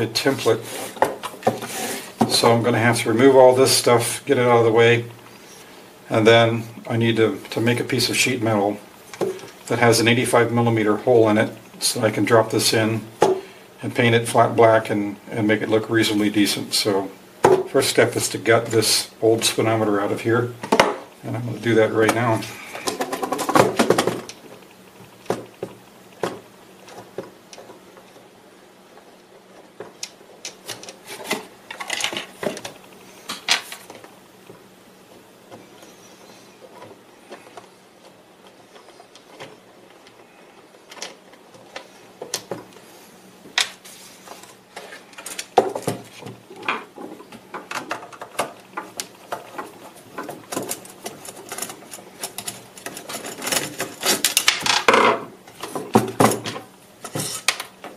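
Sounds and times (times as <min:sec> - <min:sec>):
plastic parts clicking and rattling: 0:29.8 - 0:34.1, 0:36.7 - 0:42.8, 0:44.4 - 0:57.9.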